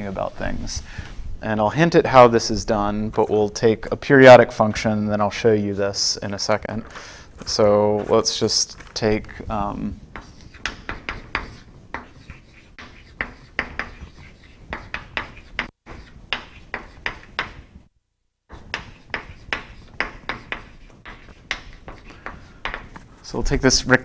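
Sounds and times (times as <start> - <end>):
chalk tapping and scraping on board: 10.1 - 17.8, 18.5 - 23.1.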